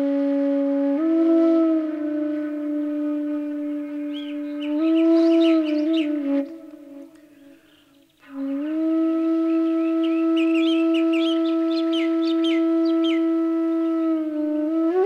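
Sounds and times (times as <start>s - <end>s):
bamboo flute playing: 0.0s - 15.0s
birds chirping: 3.3s - 14.0s.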